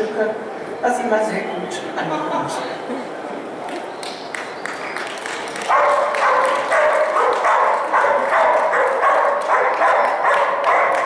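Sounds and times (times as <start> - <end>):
dog barking: 5.7 - 11.0.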